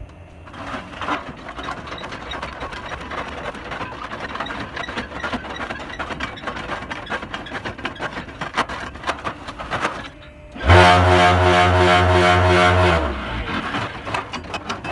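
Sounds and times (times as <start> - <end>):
block-making machine rattling: 0.4 - 10.8, 12.0 - 14.9.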